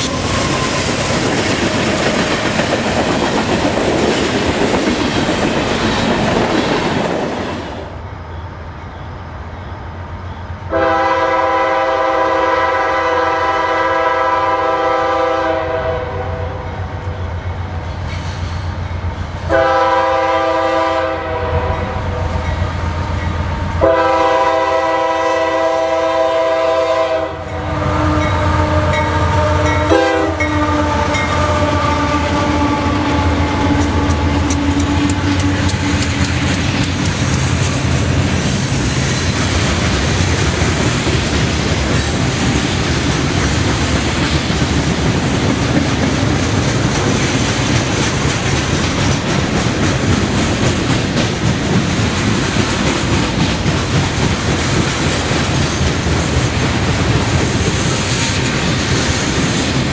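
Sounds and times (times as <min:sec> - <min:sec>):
diesel locomotive engine rumble: 0:00.0 - 0:59.9
train horn: 0:10.7 - 0:17.2, 0:19.5 - 0:36.2.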